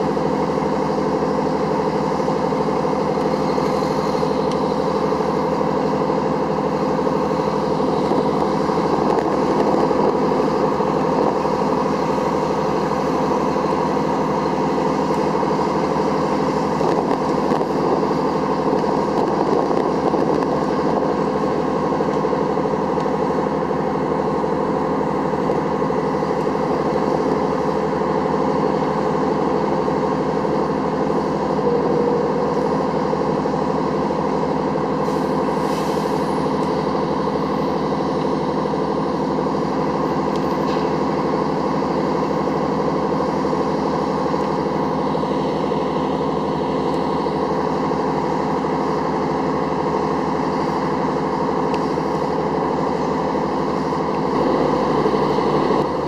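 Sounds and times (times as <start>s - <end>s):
diesel engines running: 0.0s - 56.0s.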